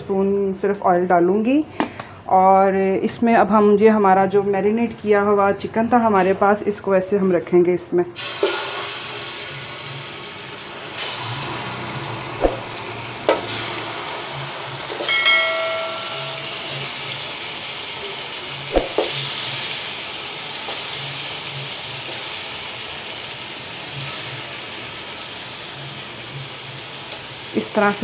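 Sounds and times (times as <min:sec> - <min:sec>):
chicken sizzling in hot oil: 0:08.2 - 0:28.0
brief metallic ring: 0:15.0 - 0:16.9.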